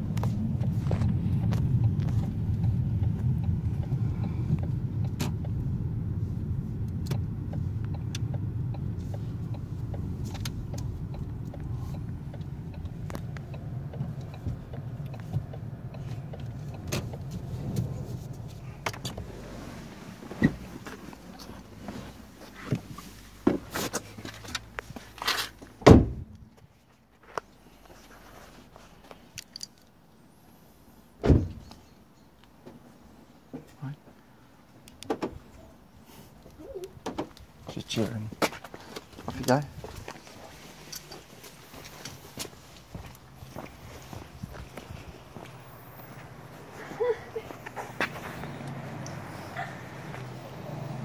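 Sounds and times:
car engine and road rumble: 0:00.0 - 0:51.0
car door shutting: 0:16.2 - 0:24.0, 0:25.8 - 0:26.4, 0:31.2 - 0:31.7, 0:35.0 - 0:35.4.

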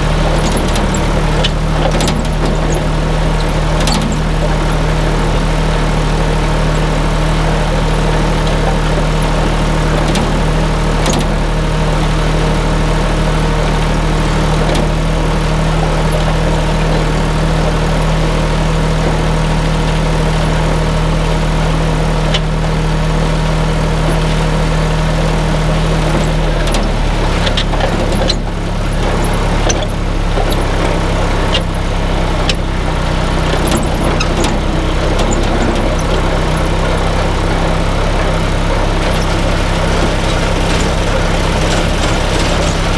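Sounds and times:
tractor engine running: 0:00.0 - 0:42.9.

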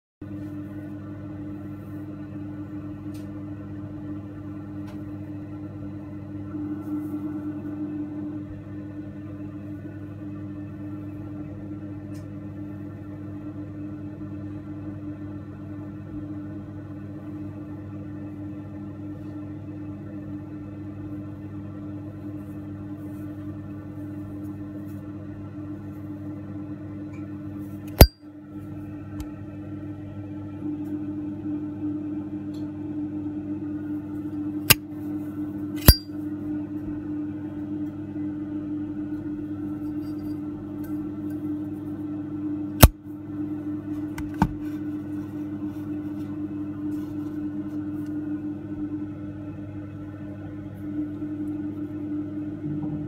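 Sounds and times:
lighter lid metallic clink: 0:27.9 - 0:28.2, 0:35.8 - 0:36.1
lighter lid snapping shut: 0:35.8 - 0:36.0.

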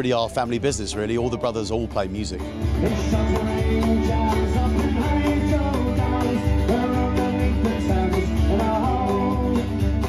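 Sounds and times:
man singing: 0:00.0 - 0:10.0
cajon beat: 0:02.4 - 0:10.0
strummed acoustic guitar: 0:02.4 - 0:10.0.

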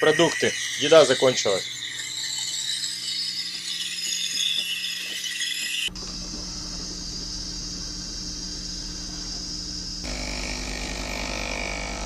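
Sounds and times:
steam wand hissing: 0:00.0 - 0:12.0
low hum: 0:05.9 - 0:12.0.

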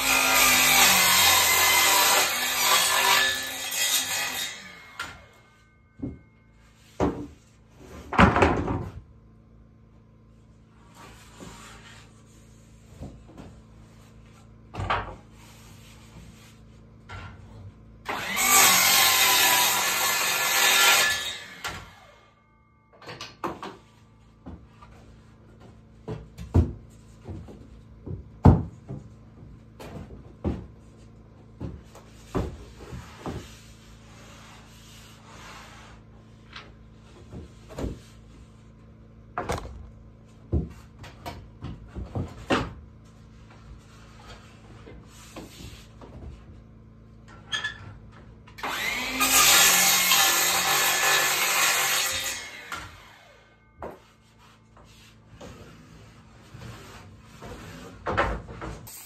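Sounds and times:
miter saw cutting: 0:00.0 - 0:05.3, 0:18.1 - 0:22.2, 0:48.6 - 0:53.4
wooden boards knocking and clattering: 0:06.9 - 0:09.1, 0:14.7 - 0:15.3, 0:25.5 - 0:33.6, 0:39.3 - 0:42.9, 0:57.4 - 0:58.9.

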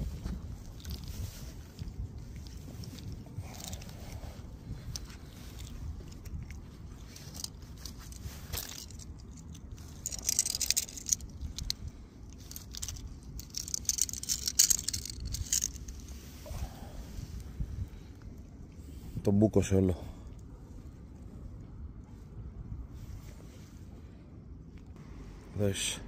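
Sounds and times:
steady low rumble: 0:00.0 - 0:26.0
fish handling rustling and clicking: 0:00.1 - 0:16.2.

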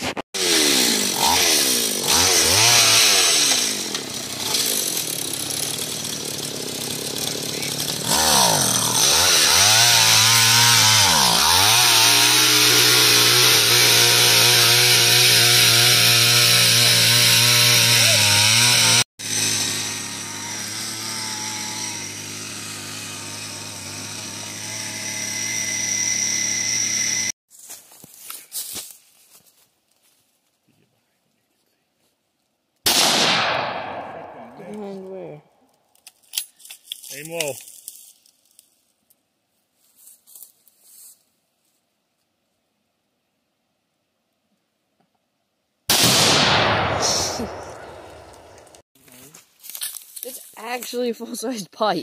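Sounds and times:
auger engine revving: 0:00.4 - 0:27.4.

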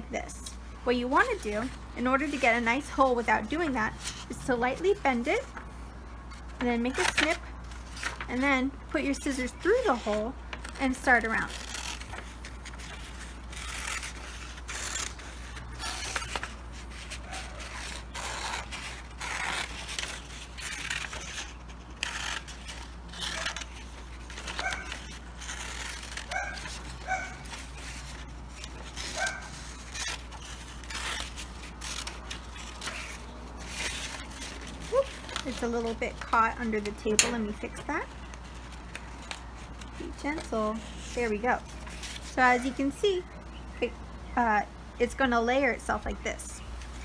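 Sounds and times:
paper crinkling and rustling: 0:01.0 - 0:42.9
scissors snipping paper: 0:06.6 - 0:40.6.

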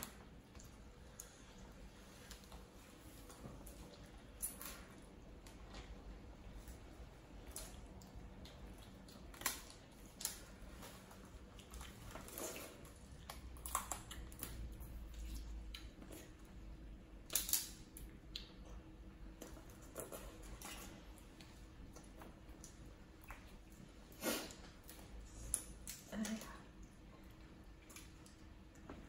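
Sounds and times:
wet chewing: 0:00.0 - 0:16.6
crab shell cracking: 0:17.2 - 0:18.5.

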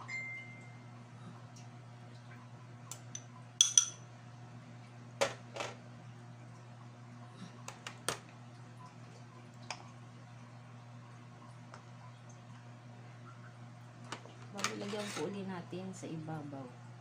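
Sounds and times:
metal utensil clinking on a bowl: 0:03.2 - 0:04.0.

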